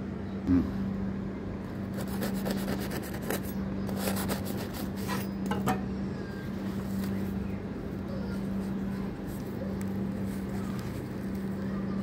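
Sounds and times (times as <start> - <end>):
steady low hum: 0.0 - 12.0
knife cutting bread crust: 1.9 - 5.4.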